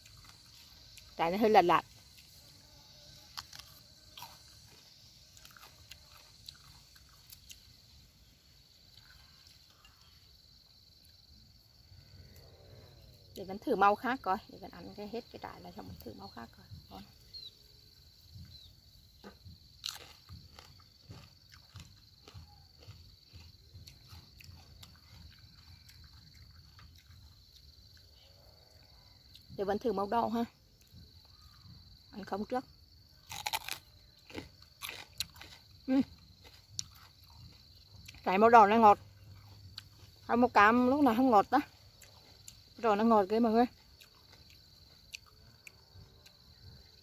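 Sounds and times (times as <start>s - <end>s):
crunching of peppers being chewed: 0.0s - 1.2s, 1.9s - 11.3s, 18.1s - 29.6s, 33.0s - 38.3s, 39.0s - 40.3s, 41.7s - 42.8s, 43.7s - 47.0s
insect trill: 0.0s - 47.0s.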